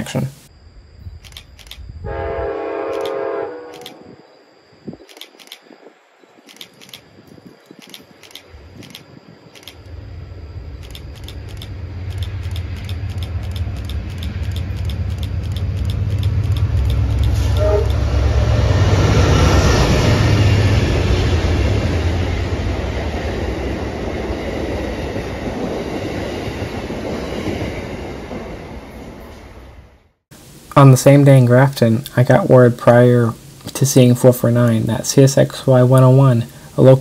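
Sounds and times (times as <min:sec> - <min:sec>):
locomotive engine and rail rumble: 0:00.0 - 0:37.0
wheels clacking on rail joints: 0:10.8 - 0:18.0.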